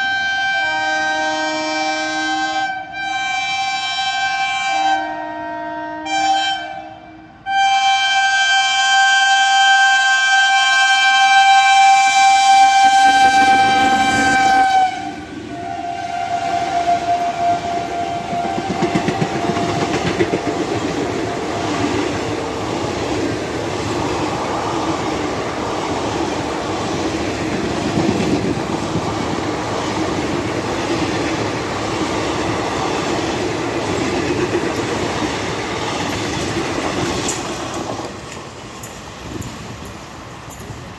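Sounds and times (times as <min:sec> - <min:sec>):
locomotive horn: 0:00.0 - 0:22.1
train coaches clattering past: 0:02.6 - 0:40.9.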